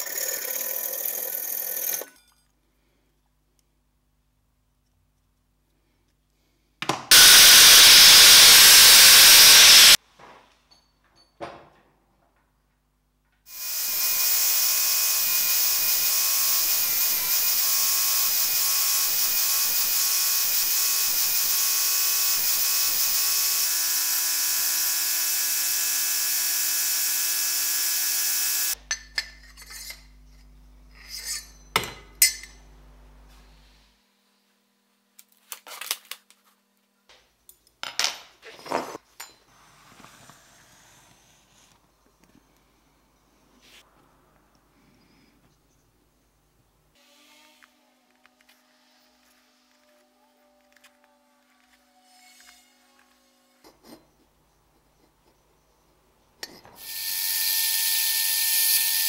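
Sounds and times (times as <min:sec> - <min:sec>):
electric sander whining: 0:07.1 - 0:10.0, 0:13.6 - 0:28.8.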